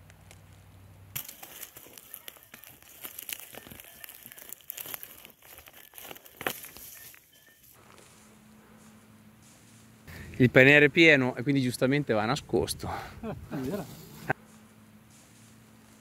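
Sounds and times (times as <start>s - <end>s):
leaves and twigs crunching: 0.0s - 10.8s, 13.5s - 16.0s.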